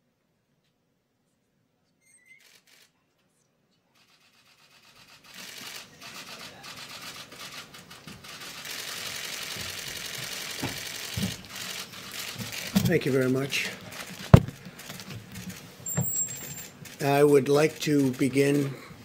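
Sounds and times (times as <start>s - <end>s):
camera shutters clicking: 4.8s - 18.8s.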